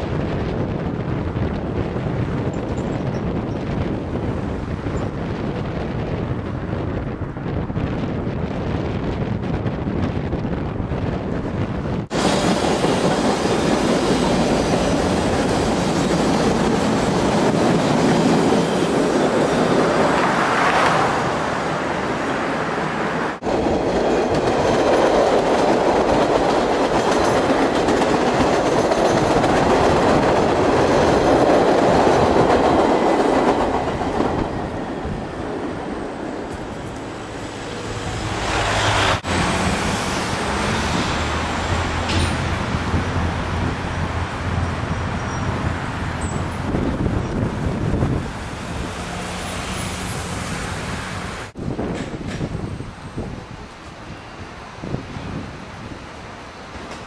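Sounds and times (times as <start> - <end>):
train running on rails: 0.0 - 57.0
train wheels clattering: 23.6 - 34.6, 39.4 - 44.0.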